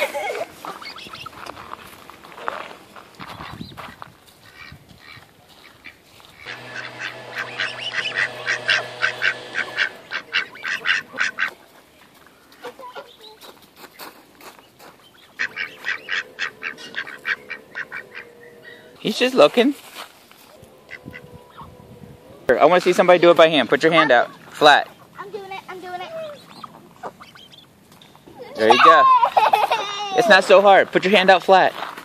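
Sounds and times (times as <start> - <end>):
ducks and geese calling: 0.0 - 1.5, 3.3 - 11.7, 15.0 - 19.8, 20.4 - 29.2.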